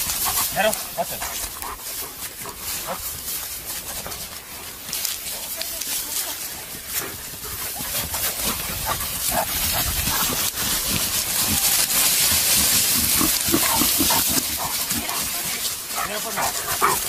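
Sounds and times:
wild boars grunting: 0:06.8 - 0:17.0.

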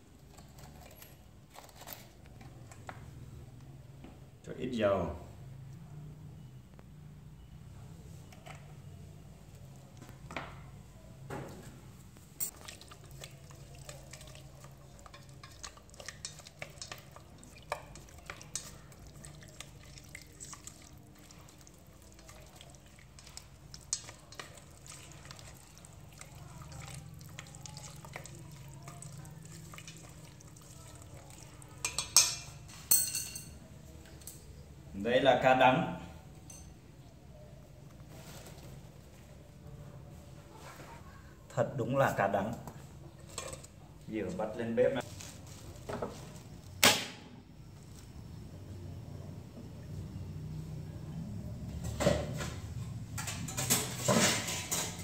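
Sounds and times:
wooden utensil stirring in metal pot: 0:12.5 - 0:32.4
clatters in pot: 0:31.8 - 0:33.6, 0:43.2 - 0:43.8, 0:51.8 - 0:55.0.

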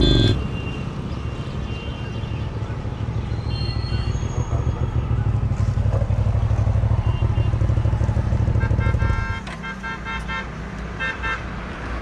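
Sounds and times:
motorcycle engine running: 0:04.5 - 0:09.3.

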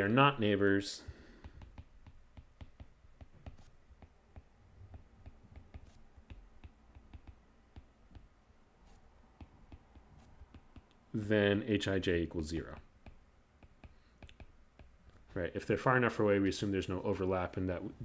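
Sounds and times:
stylus tapping on tablet screen: 0:01.1 - 0:11.1, 0:12.5 - 0:15.3.

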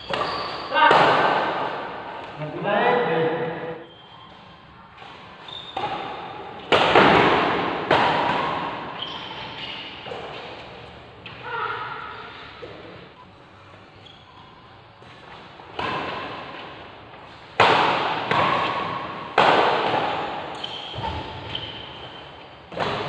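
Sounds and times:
rackets hitting shuttlecock: 0:00.0 - 0:02.4, 0:05.0 - 0:10.7, 0:15.0 - 0:23.0.

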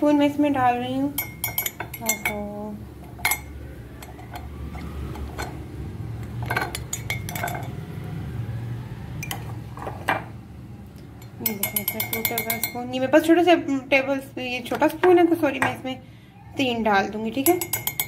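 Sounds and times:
low steady hum: 0:00.0 - 0:18.0
metal spoon clinking on ceramic mug: 0:01.1 - 0:02.4, 0:03.1 - 0:04.5, 0:06.4 - 0:07.8, 0:09.2 - 0:09.6, 0:11.2 - 0:13.0, 0:17.3 - 0:18.0.

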